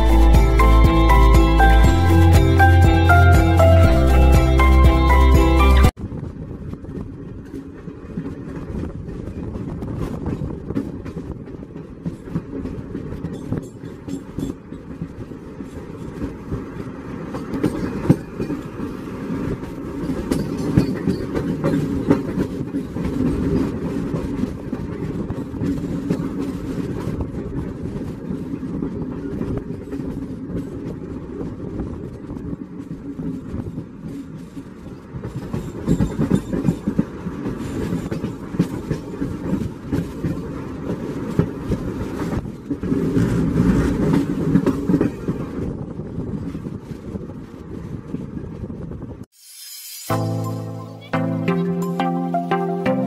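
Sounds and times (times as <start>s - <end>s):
train wheels rumbling on rails: 0.0s - 49.3s
clicks and clatters of train: 5.9s - 49.3s.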